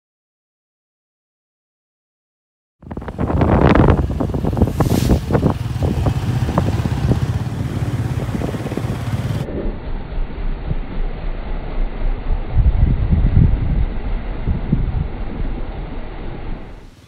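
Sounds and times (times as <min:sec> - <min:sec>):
wind buffeting microphone: 0:02.8 - 0:09.5, 0:12.3 - 0:17.0
motorcycle engine running: 0:02.9 - 0:11.2.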